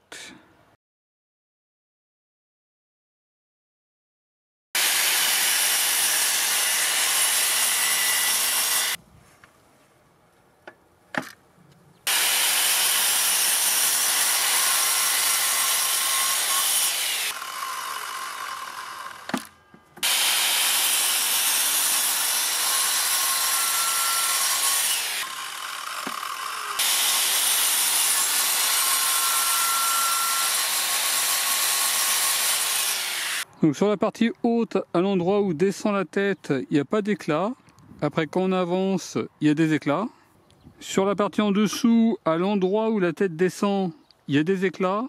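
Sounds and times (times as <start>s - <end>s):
mitre saw cutting chipboard: 4.8s - 9.0s, 12.1s - 33.4s.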